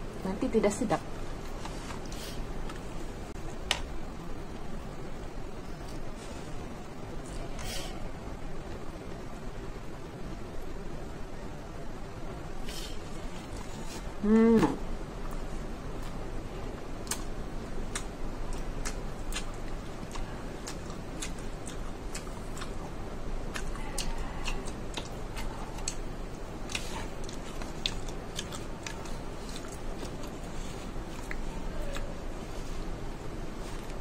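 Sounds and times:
person chewing wet mouth sounds: 17.0 - 32.9.

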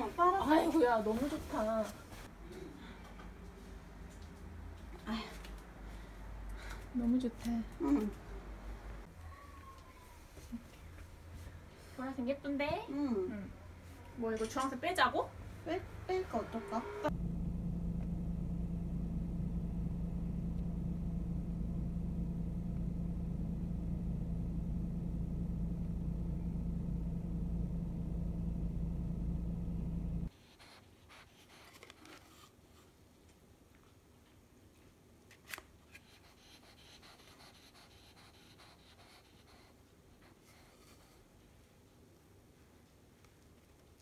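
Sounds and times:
car cabin rumble: 17.1 - 30.3.

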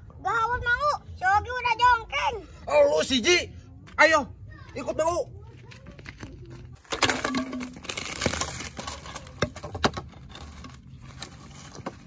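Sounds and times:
bamboo poles rustling in dry leaves: 6.3 - 12.0
bamboo poles knocking: 6.9 - 8.2.

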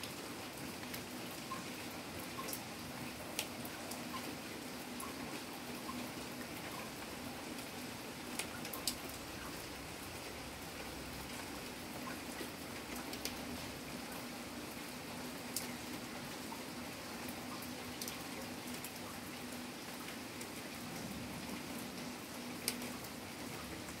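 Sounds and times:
steady rain falling: 0.0 - 24.0.

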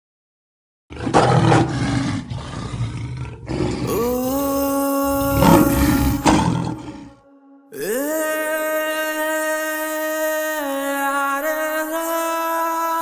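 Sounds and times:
cinematic roar: 1.0 - 7.5
layered rising tones: 3.9 - 7.9.

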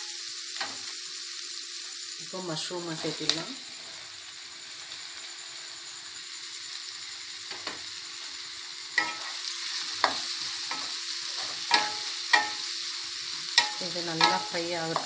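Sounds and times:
mushrooms sizzling in a frying pan: 0.0 - 15.0
spatula scraping and knocking pan: 9.0 - 9.4, 10.0 - 12.7.

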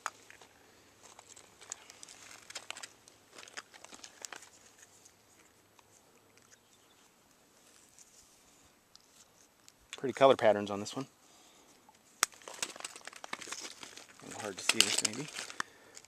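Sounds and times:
mesh net rustling: 1.2 - 6.0, 12.0 - 15.6.

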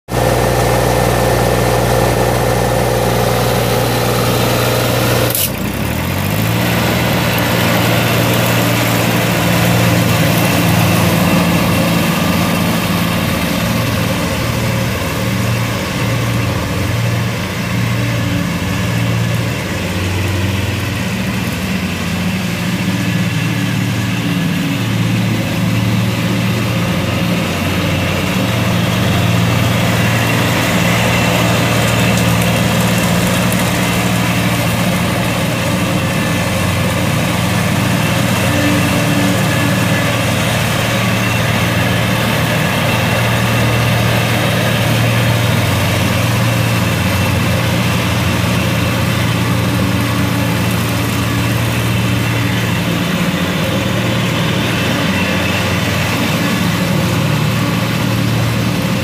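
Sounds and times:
diesel mower engine idling: 0.0 - 59.0
sharp click: 5.3 - 5.6.

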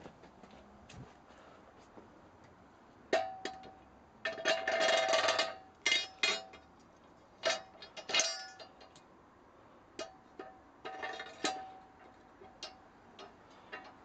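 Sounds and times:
metal parts clanking: 4.3 - 6.6, 7.4 - 9.0.

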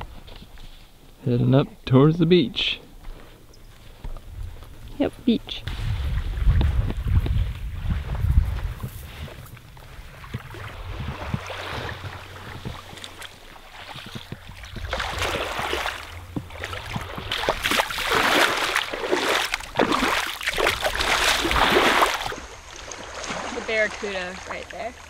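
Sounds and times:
wind on microphone: 4.0 - 18.6
small waves washing on beach: 5.6 - 25.0.

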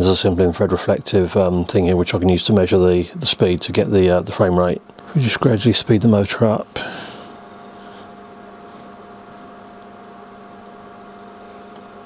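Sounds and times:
faint motor whine: 0.0 - 12.0
small electric motor humming: 6.0 - 12.0.

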